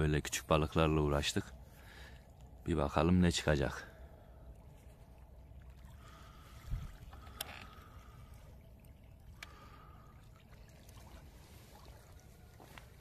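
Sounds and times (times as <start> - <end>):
water lapping at shoreline: 0.0 - 13.0.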